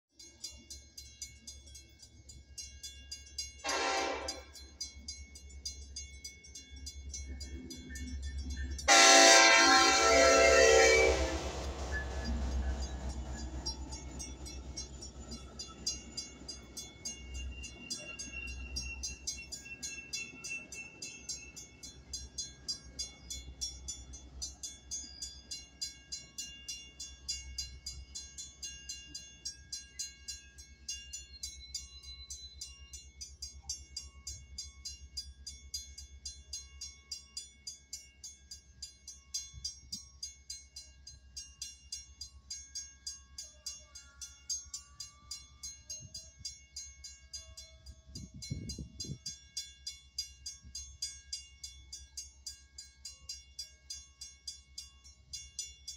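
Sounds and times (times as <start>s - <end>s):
crossing warning bell ringing: 0.2s - 55.9s
train rumbling: 1.7s - 32.5s, 43.4s - 49.6s.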